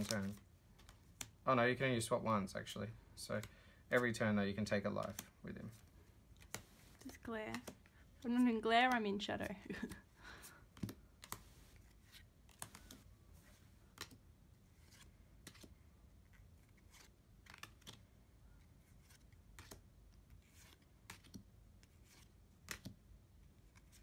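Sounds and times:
trading cards clicking and snapping: 4.8s - 5.4s, 6.3s - 8.0s, 8.8s - 10.1s, 10.7s - 11.4s, 12.1s - 13.1s, 13.9s - 14.2s, 14.8s - 15.8s, 16.7s - 18.0s, 19.0s - 23.0s.

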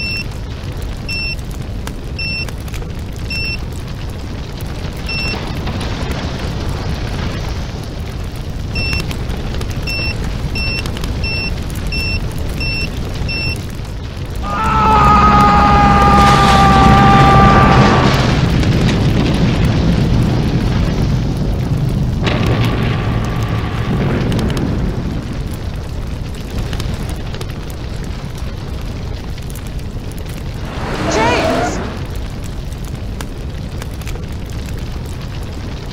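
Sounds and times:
faint crackles: 0.0s - 35.9s
fire low rumble: 0.0s - 35.9s
electronic timer beeping: 8.8s - 9.0s, 9.9s - 13.6s
low rumble: 30.4s - 32.8s.

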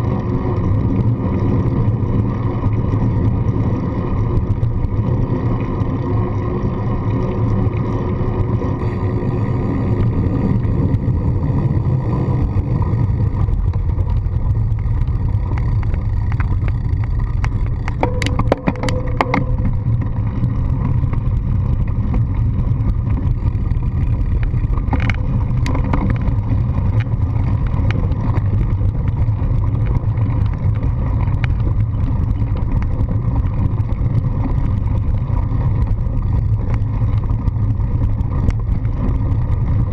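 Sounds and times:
bicycle tyres rolling: 0.0s - 39.9s
wind rumble on microphone: 0.0s - 39.9s
sharp clicks and knocks: 13.4s - 33.5s.

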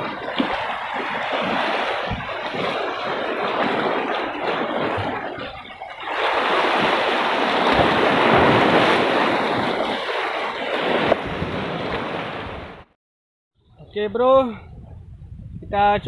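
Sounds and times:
wind on microphone: 0.0s - 12.8s, 13.6s - 16.0s
sea waves washing against rocks: 0.0s - 12.9s.

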